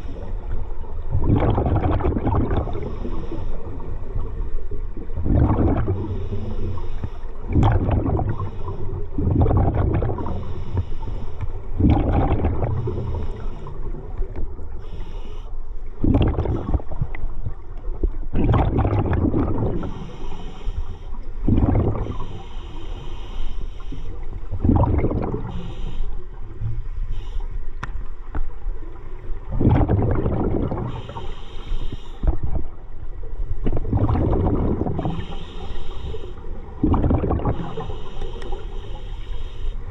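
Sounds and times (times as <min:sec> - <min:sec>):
exhaled bubbles gurgling: 0:00.0 - 0:10.8, 0:11.4 - 0:14.9, 0:15.8 - 0:23.1, 0:24.2 - 0:26.9, 0:28.7 - 0:31.4, 0:32.2 - 0:39.0
air hissing through regulator: 0:10.2 - 0:11.7, 0:14.8 - 0:15.5, 0:19.8 - 0:21.2, 0:22.0 - 0:24.3, 0:25.4 - 0:27.6, 0:30.8 - 0:32.3, 0:35.0 - 0:36.5, 0:37.4 - 0:39.9.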